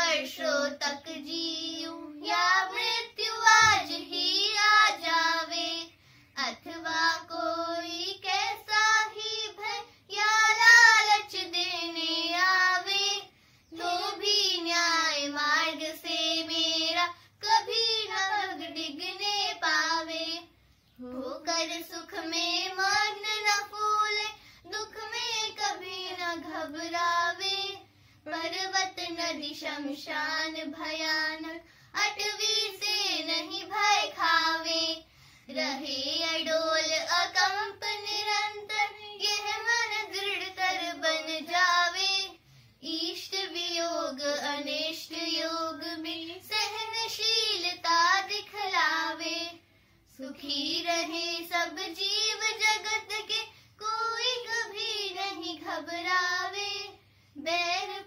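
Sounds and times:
children singing a prayer hymn: 0.0s - 13.2s.

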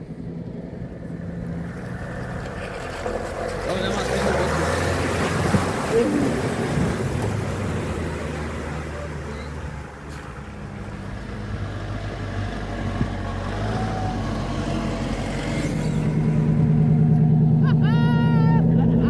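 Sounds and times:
off-road vehicle engine running: 0.0s - 19.0s
tyre and ground noise: 0.0s - 19.0s.

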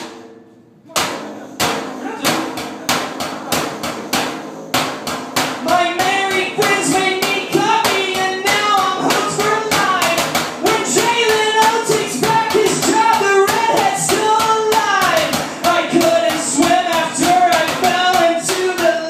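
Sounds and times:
pots and cans drummed: 0.0s - 19.0s
person singing: 5.5s - 19.0s.

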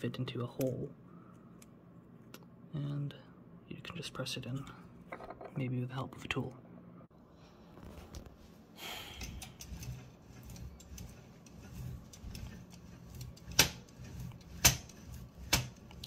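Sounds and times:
typewriter mechanism scrape: 9.2s - 16.0s.

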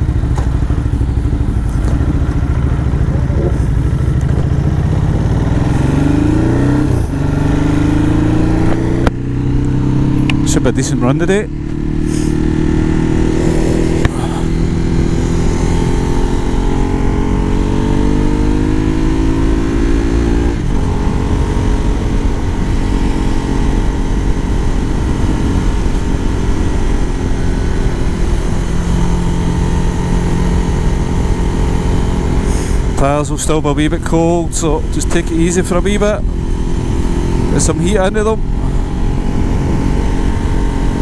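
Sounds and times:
motorcycle engine accelerating: 0.0s - 41.0s
wind rush on microphone: 11.6s - 33.0s, 38.2s - 41.0s.

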